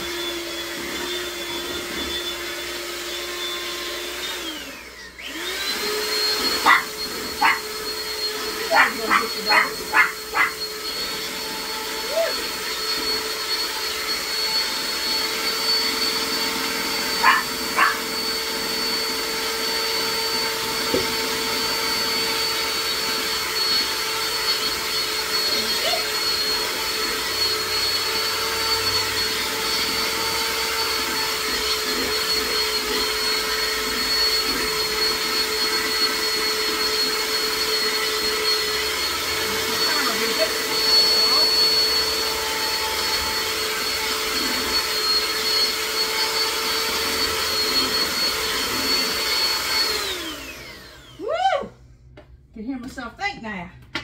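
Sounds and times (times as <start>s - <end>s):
electric mixer whining: 0.0s - 51.4s
small dog yipping: 6.5s - 7.7s, 8.6s - 10.7s, 17.1s - 18.1s.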